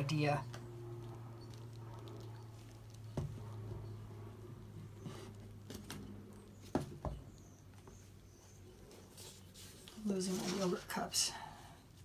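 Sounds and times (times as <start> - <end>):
steady low hum: 0.0 - 9.1
canvas tapping and knocking: 3.1 - 3.5.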